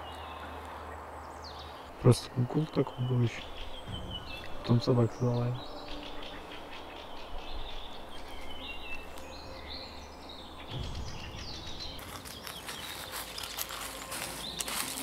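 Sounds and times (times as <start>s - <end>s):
outdoor background noise: 0.0s - 15.0s
small birds chirping: 0.0s - 15.0s
rustling and crackling: 12.0s - 15.0s.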